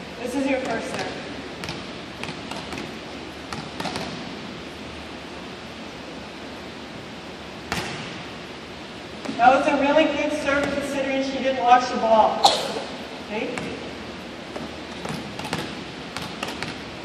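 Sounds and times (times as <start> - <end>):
steady background hiss: 0.0 - 17.0
hand slapping volleyball: 0.6 - 4.3, 7.7 - 8.2, 14.5 - 16.8.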